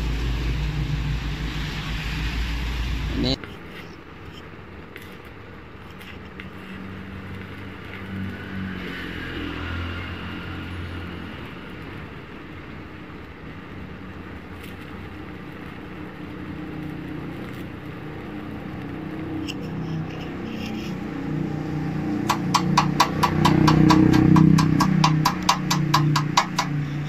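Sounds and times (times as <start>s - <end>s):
low hum: 0.0s - 4.4s
welding arc hissing: 0.0s - 27.0s.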